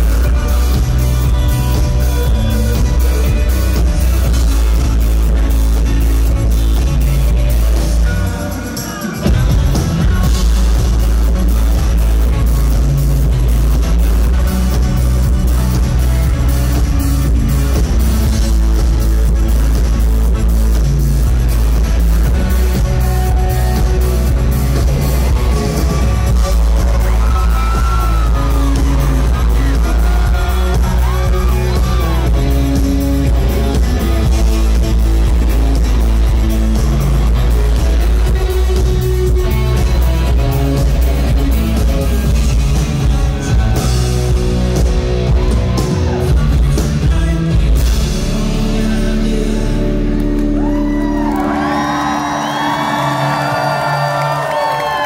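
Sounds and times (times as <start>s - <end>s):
live band playing: 0.0s - 55.0s
audience cheering and whooping: 24.7s - 33.8s, 43.0s - 46.4s, 50.4s - 55.0s.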